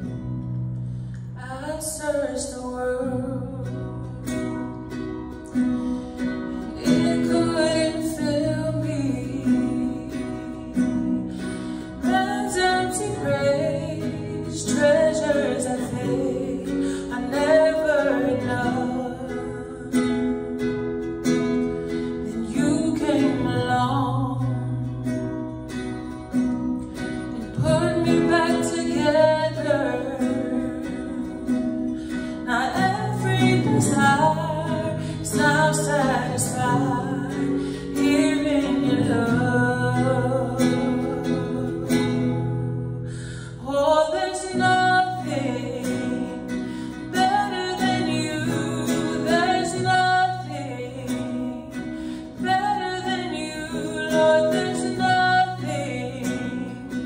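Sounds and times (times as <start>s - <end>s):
acoustic guitar: 0.0s - 57.0s
woman singing: 1.1s - 57.0s.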